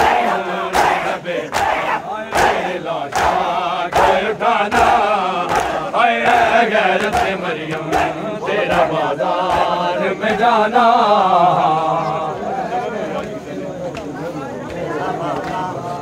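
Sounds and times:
hands slapping on chests: 0.0s - 8.9s
men chanting together: 0.0s - 16.0s.

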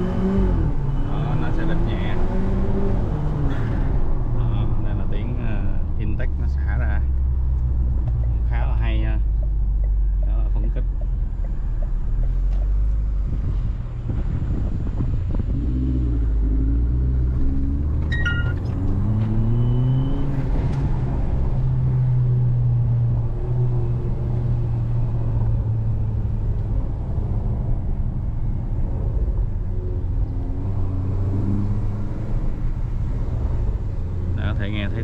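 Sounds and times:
car engine accelerating hard: 0.0s - 4.2s, 11.6s - 35.0s.

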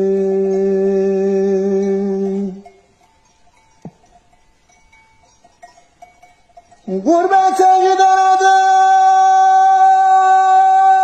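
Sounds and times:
man singing long note: 0.0s - 2.6s, 6.9s - 11.0s
sheep bells tinkling: 0.0s - 11.0s.

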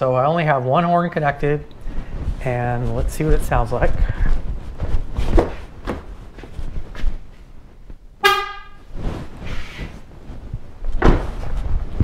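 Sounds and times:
car horn honk: 8.2s - 8.9s.

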